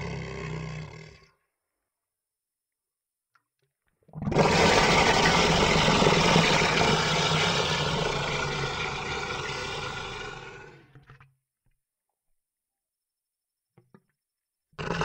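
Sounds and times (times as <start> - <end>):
monster roar: 4.3 - 11.0, 14.8 - 15.0.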